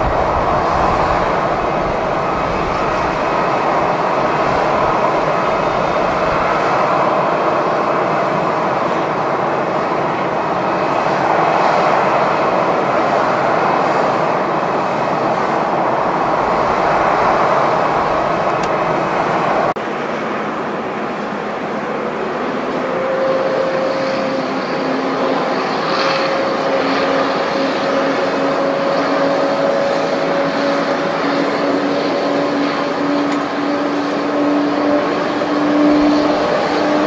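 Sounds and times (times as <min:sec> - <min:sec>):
jet engines roaring: 0:00.0 - 0:37.0.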